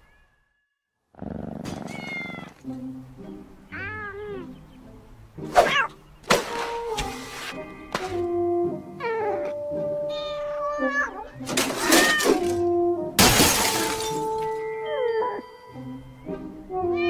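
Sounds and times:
cat meowing: 1.8 - 2.6, 3.7 - 4.5, 9.0 - 12.4.

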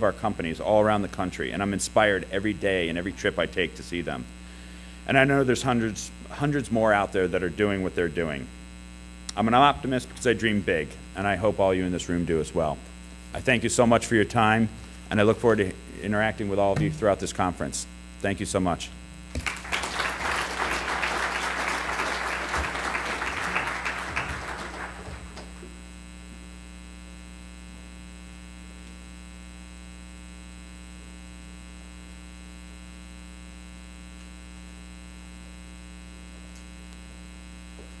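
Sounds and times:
electrical mains hum: 0.0 - 38.0
audience applauding: 19.3 - 25.7.

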